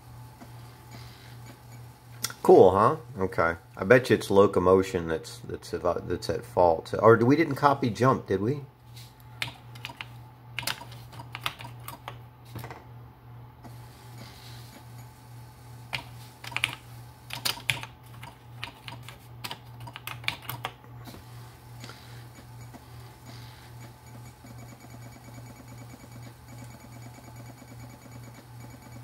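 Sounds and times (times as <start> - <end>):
steady low hum: 0.0 - 29.0
keyboard typing clicks: 9.4 - 12.2, 16.0 - 20.8.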